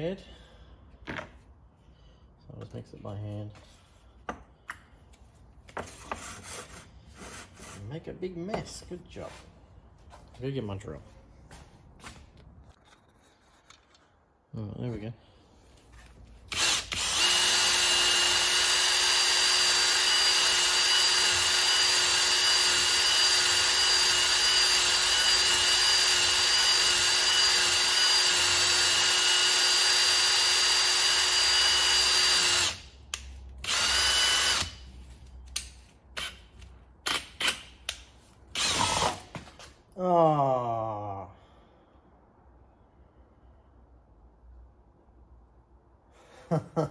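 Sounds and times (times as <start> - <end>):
electric drill whining: 16.5 - 32.8, 33.6 - 34.8, 38.5 - 39.3.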